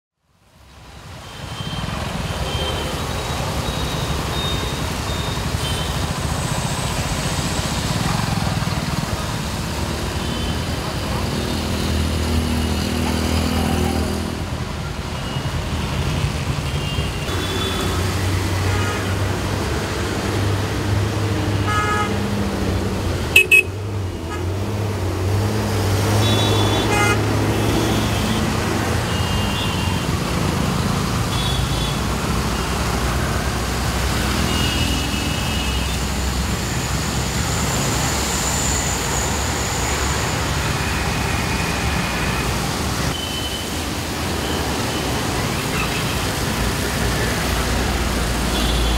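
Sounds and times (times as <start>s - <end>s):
auto rickshaw engines running: 0.3s - 48.9s
motorcycle engines running: 5.0s - 14.6s.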